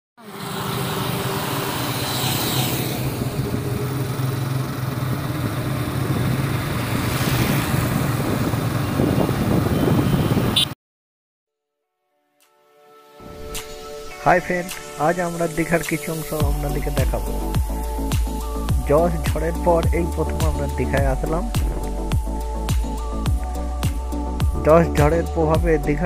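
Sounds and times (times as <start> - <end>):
motorcycle engine drone: 0.2 - 10.7, 15.3 - 24.5
wind rush: 4.9 - 10.7.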